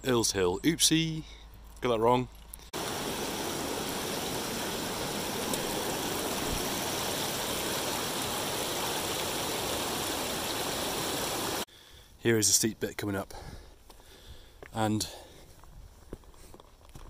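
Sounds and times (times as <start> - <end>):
waterfall pouring into pool: 2.8 - 11.7.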